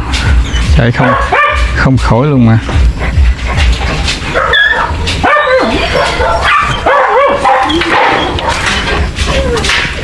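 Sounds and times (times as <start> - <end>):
dog yelping and whining: 0.2 - 1.6, 3.7 - 10.0.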